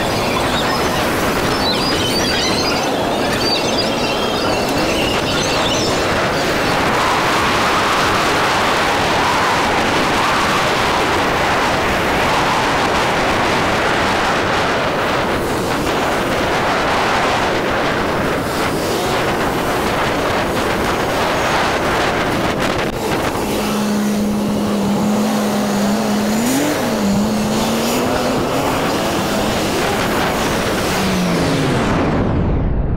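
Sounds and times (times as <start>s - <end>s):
motorbike engine: 0.0s - 32.2s
wind rushing over microphone: 0.0s - 32.9s.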